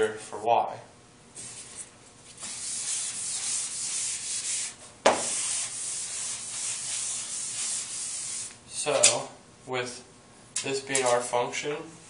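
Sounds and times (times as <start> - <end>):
eraser rubbing on blackboard: 1.5 - 8.6.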